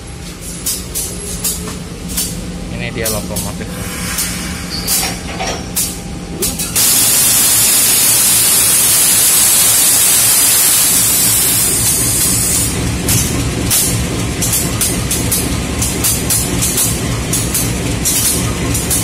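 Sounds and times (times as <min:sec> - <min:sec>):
compressed air hissing: 0:03.7 - 0:05.2, 0:05.8 - 0:12.7
diesel engine idling: 0:11.0 - 0:19.0.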